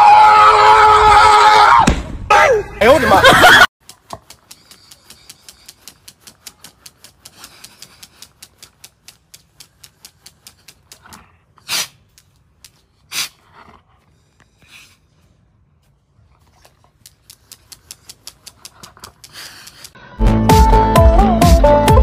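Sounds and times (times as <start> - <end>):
firework crackling: 3.8 - 12.4
loud noisy puffs: 4.2 - 12.2, 17.2 - 20.0.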